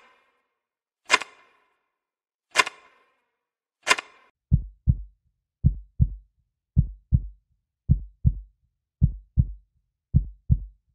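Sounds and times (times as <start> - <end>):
heartbeat thumps: 4.5 - 6.2, 6.8 - 10.8.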